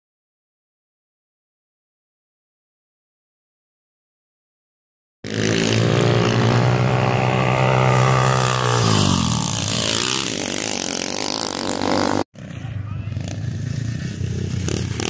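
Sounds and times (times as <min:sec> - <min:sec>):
dirt bike engine revving: 0:05.2 - 0:15.0.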